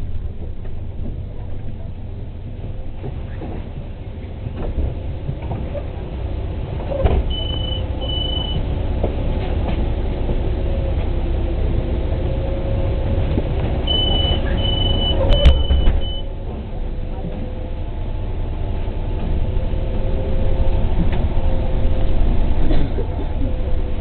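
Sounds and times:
bus engine idling: 0:00.0 - 0:24.0
door warning beeps: 0:07.3 - 0:08.6, 0:13.9 - 0:16.3
bus doors closing thump: 0:13.9 - 0:16.3.

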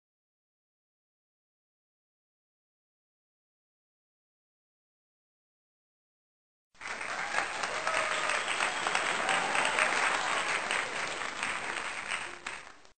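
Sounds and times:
crowd applauding: 0:06.8 - 0:13.0.

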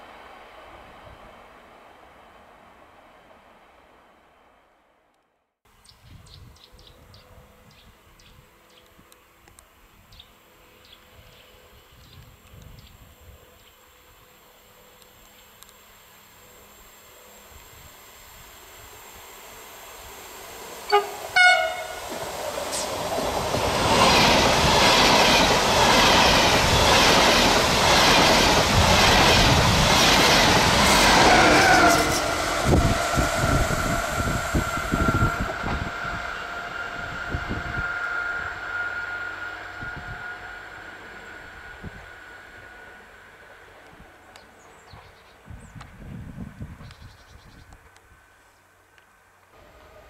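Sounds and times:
high whine: 0:13.2 - 0:44.5
train wheels rushing on rail: 0:18.6 - 0:45.2
train horn blasts: 0:20.8 - 0:22.2, 0:30.8 - 0:43.4.

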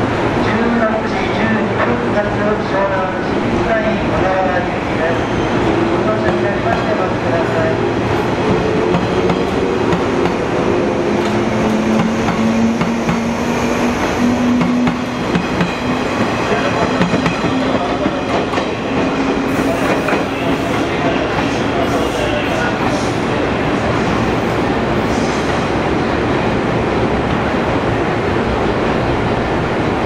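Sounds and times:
train wheels rumbling on rails: 0:00.0 - 0:30.0.

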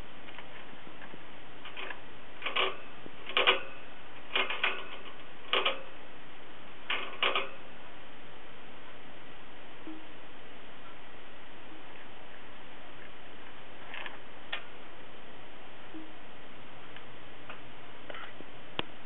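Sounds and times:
hamster claws clicking on cage: 0:01.7 - 0:05.9.

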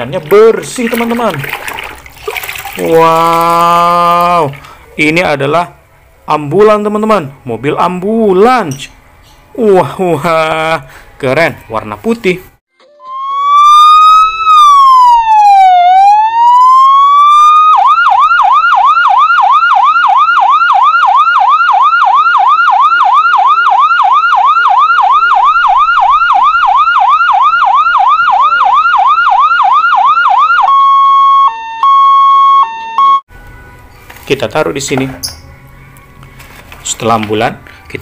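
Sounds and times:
ambulance siren wailing and yelping: 0:12.8 - 0:33.3.

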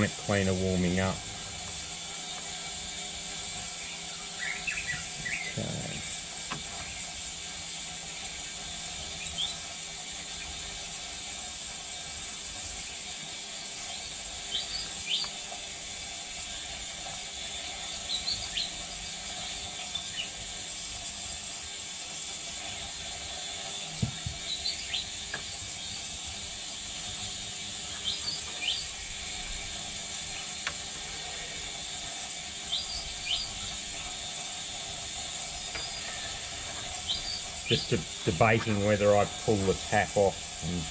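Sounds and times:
ultrasonic cleaner humming: 0:00.0 - 0:40.9.

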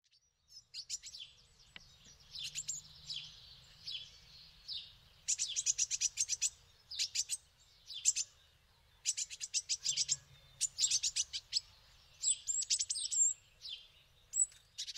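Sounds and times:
small songbirds chirping: 0:00.0 - 0:14.9.

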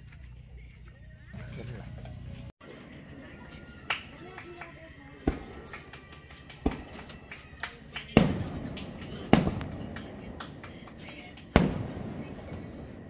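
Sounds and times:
fireworks pops and crackles: 0:03.8 - 0:13.0
fireworks booming with echo: 0:05.2 - 0:13.0.

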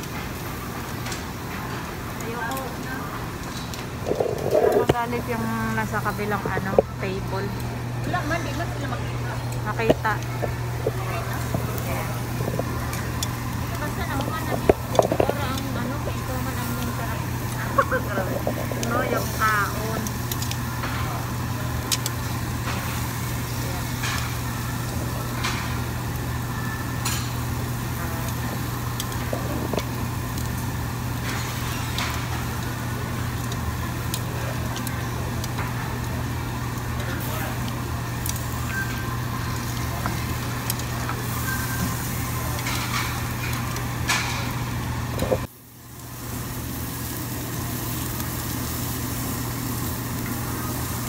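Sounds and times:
exhaust hood hum: 0:00.0 - 0:51.0
meat sizzling on a grill: 0:00.0 - 0:51.0
faint chatter: 0:02.2 - 0:25.9.

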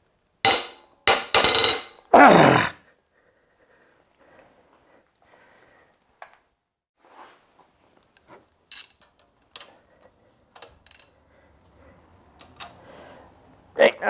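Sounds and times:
metal hand tools clinking: 0:08.6 - 0:09.3, 0:10.6 - 0:11.2.

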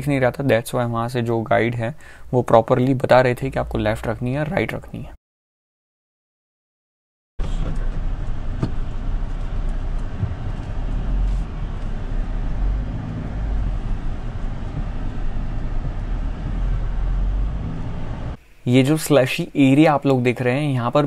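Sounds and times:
low engine drone: 0:07.4 - 0:18.4
tyre and suspension noise: 0:07.4 - 0:18.4.

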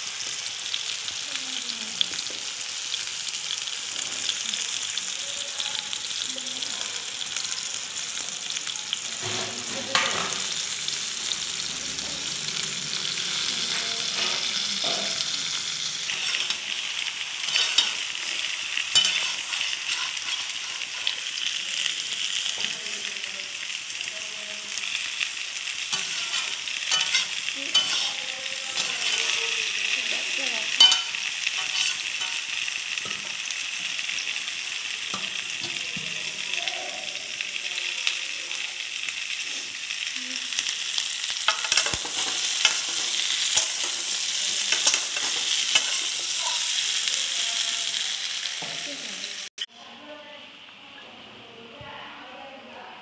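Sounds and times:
food sizzling in hot oil: 0:00.0 - 0:49.7
spatula scraping a pan: 0:16.1 - 0:21.4, 0:25.9 - 0:29.4, 0:30.8 - 0:33.2, 0:41.5 - 0:47.0.

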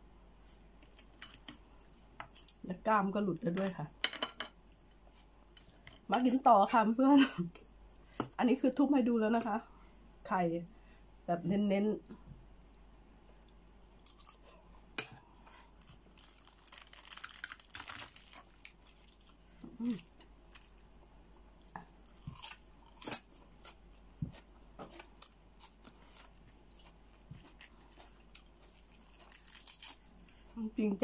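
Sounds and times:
chewing and crunching food: 0:14.0 - 0:20.9, 0:21.6 - 0:23.9, 0:24.9 - 0:30.6.

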